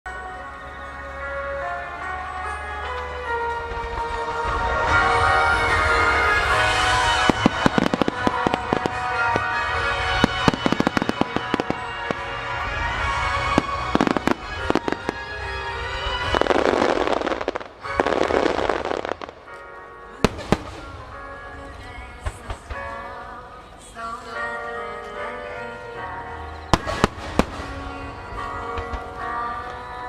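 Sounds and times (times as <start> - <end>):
music playing: 0.1 - 30.0
fireworks crackling: 2.8 - 23.0, 26.7 - 29.9
fireworks bursts: 3.7 - 19.6, 26.7 - 29.1.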